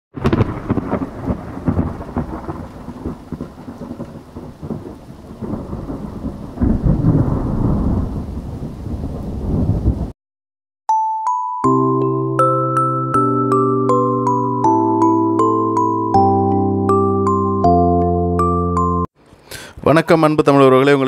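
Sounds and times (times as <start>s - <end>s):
thunder rumbling: 0.2s - 10.1s
rain: 0.2s - 10.2s.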